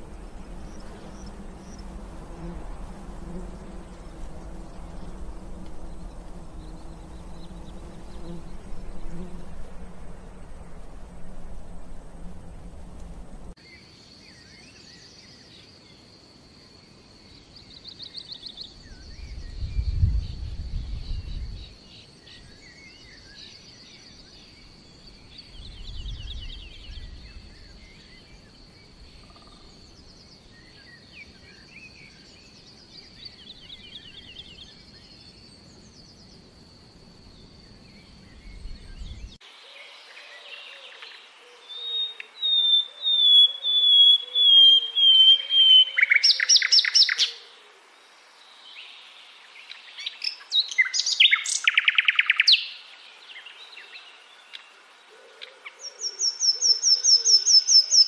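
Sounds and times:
high insect drone: 0.0 - 58.0
low rumbling swells: 8.1 - 13.6
songbird trilling: 40.8 - 47.5, 49.7 - 52.8, 55.4 - 58.0.

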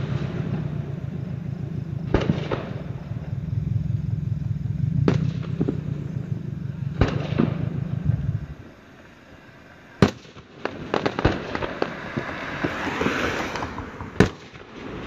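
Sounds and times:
distant fireworks bursting: 0.0 - 15.0
steady low hum: 0.3 - 9.6.

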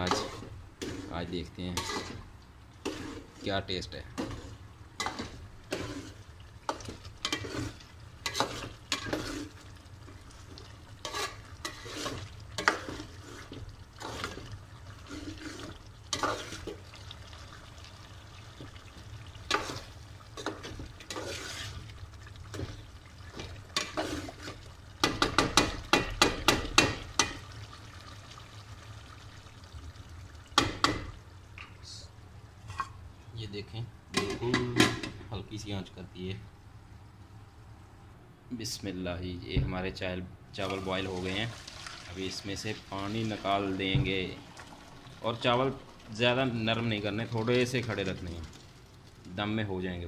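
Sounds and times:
metal ladle scraping pot: 0.0 - 3.5, 4.2 - 9.6, 11.0 - 16.8, 19.5 - 21.8, 22.5 - 25.6.

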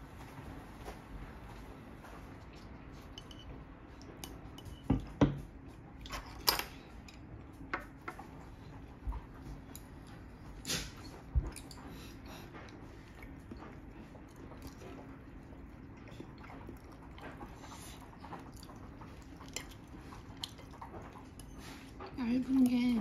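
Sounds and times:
chopsticks clinking on ceramic dishes: 3.1 - 3.5.

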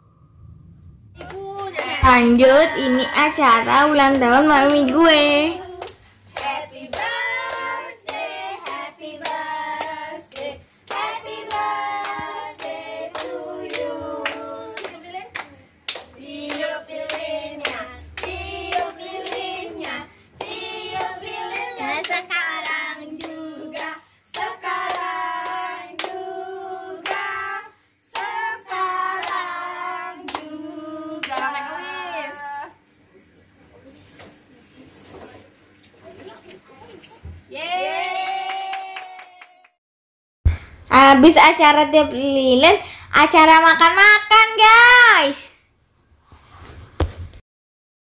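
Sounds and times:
group singing birthday song: 1.2 - 32.8
people clapping in time: 38.0 - 39.8.

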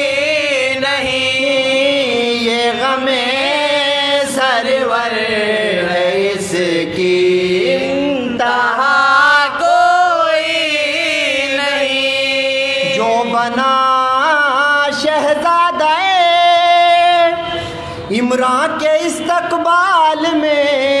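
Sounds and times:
men chanting a lament: 0.0 - 21.0.

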